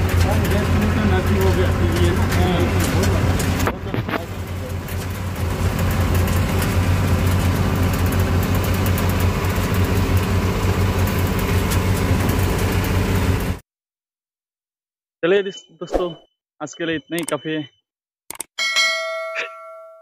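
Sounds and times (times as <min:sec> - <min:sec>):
road noise: 0:00.0 - 0:13.6
truck engine drone: 0:00.0 - 0:13.6.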